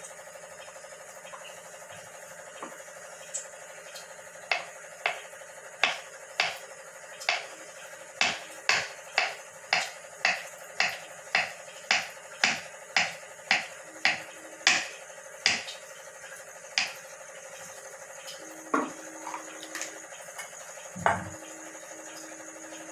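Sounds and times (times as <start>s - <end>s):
knife tapping on wooden board: 4.5s - 5.2s, 5.8s - 6.6s, 8.2s - 14.9s, 15.5s - 15.7s.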